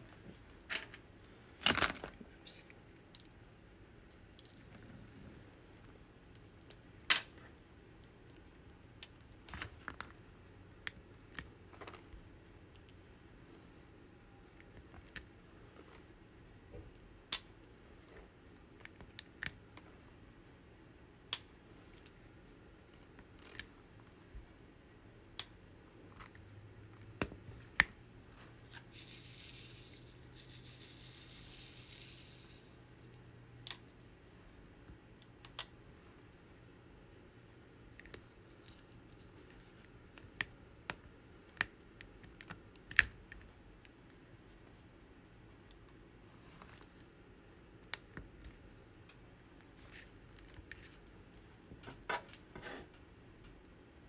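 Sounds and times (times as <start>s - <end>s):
soft hiss: 0.0s - 9.7s, 10.3s - 36.6s.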